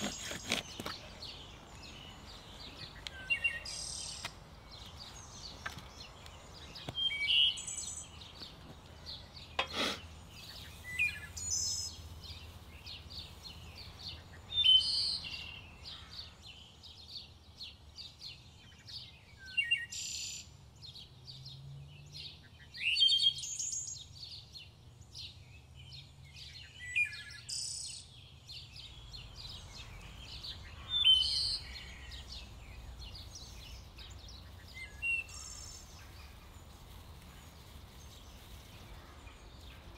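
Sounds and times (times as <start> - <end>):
songbirds singing: 0.0 - 39.9.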